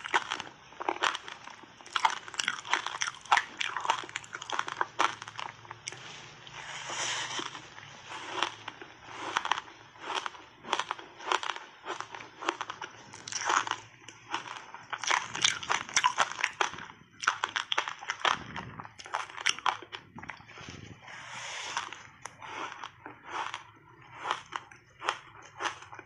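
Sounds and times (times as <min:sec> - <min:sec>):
teeth crunching frozen ice: 0:00.0 - 0:26.0.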